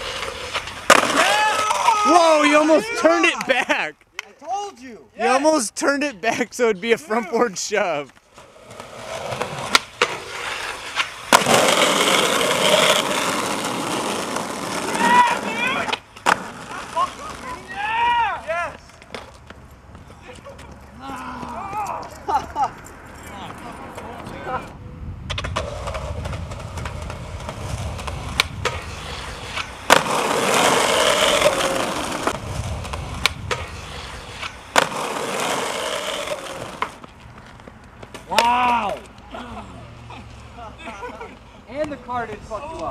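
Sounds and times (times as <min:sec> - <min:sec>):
skateboard wheels rolling on ground: 0:00.0 - 0:42.9
skateboard smack: 0:00.5 - 0:02.0, 0:09.3 - 0:16.6, 0:25.3 - 0:39.0
skateboard clacks: 0:08.1 - 0:17.8, 0:25.3 - 0:39.2.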